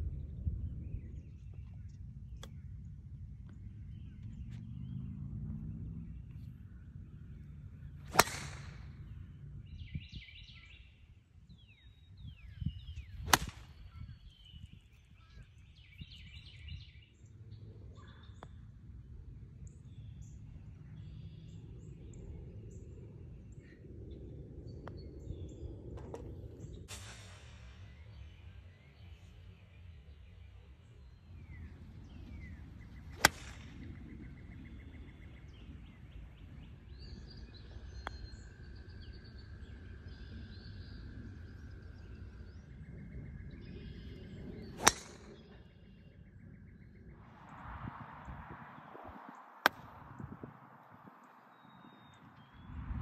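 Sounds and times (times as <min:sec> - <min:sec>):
wind rumble on microphone: 0:00.0 - 0:53.0
golf club striking ball: 0:08.1 - 0:09.1, 0:13.2 - 0:13.8, 0:33.2 - 0:33.6, 0:44.7 - 0:45.5, 0:49.6 - 0:50.4.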